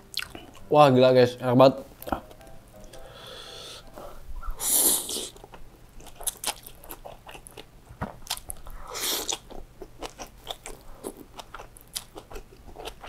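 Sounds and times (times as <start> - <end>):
wet chewing and mouth clicks: 0.1 - 0.7, 5.3 - 13.0
person slurping noodles: 4.6 - 5.4.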